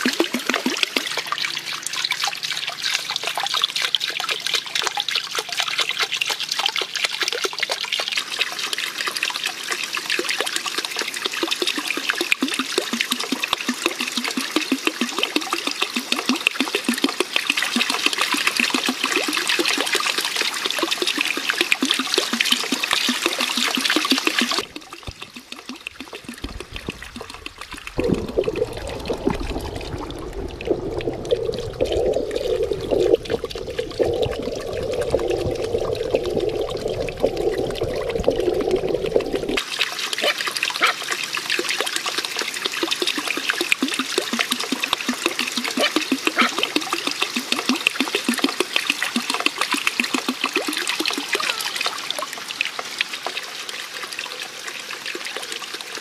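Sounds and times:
water trickling into pond: 0:00.0 - 0:56.0
muffled underwater sound: 0:26.0 - 0:39.6.

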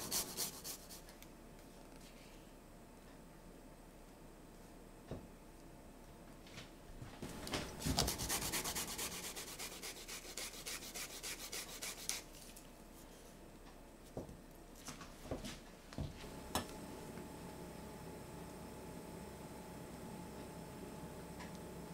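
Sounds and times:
ginger scraping on grater: 0:07.8 - 0:12.2.

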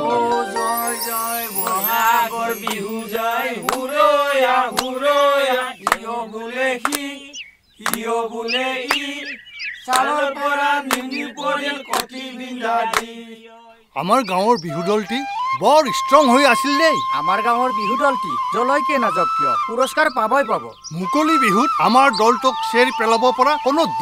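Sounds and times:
men singing: 0:00.0 - 0:13.6
hands clapping: 0:00.6 - 0:06.1, 0:06.8 - 0:07.1, 0:07.8 - 0:08.1, 0:08.8 - 0:09.1, 0:09.9 - 0:10.2, 0:10.8 - 0:11.2, 0:11.9 - 0:12.2, 0:12.9 - 0:13.1.

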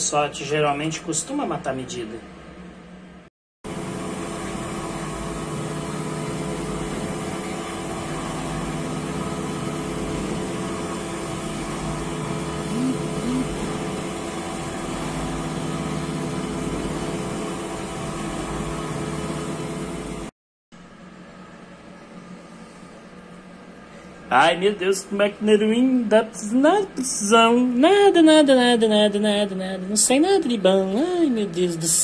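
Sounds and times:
milling machine cutting: 0:06.4 - 0:19.4.

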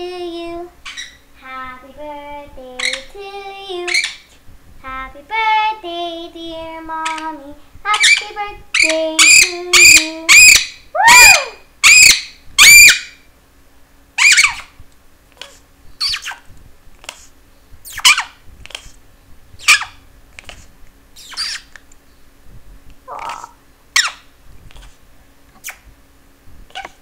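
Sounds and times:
parrot chirps: 0:00.8 - 0:01.2, 0:02.8 - 0:03.1, 0:03.8 - 0:04.4, 0:07.9 - 0:13.2, 0:14.2 - 0:14.8, 0:15.4 - 0:16.5, 0:17.8 - 0:18.9, 0:19.6 - 0:20.0, 0:21.2 - 0:21.8, 0:23.1 - 0:24.9, 0:25.6 - 0:25.9
parrot squawking: 0:00.8 - 0:01.2, 0:02.8 - 0:03.1, 0:03.8 - 0:04.4, 0:07.9 - 0:13.2, 0:14.2 - 0:14.8, 0:15.4 - 0:16.4, 0:17.9 - 0:18.4, 0:19.6 - 0:20.0, 0:21.2 - 0:21.7, 0:23.1 - 0:24.9, 0:26.7 - 0:27.0.

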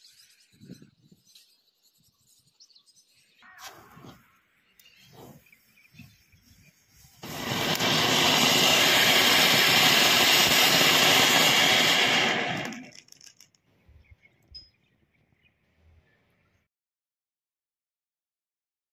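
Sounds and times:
firework fountain hissing: 0:06.7 - 0:13.4.

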